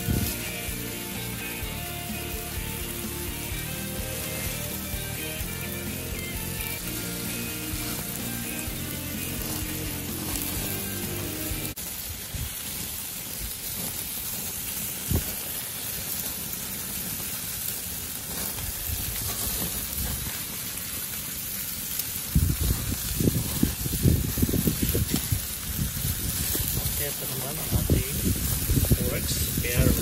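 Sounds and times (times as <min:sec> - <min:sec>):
meat sizzling on a gas grill: 0:00.0 - 0:30.0
low rumbling buffets: 0:22.3 - 0:30.0.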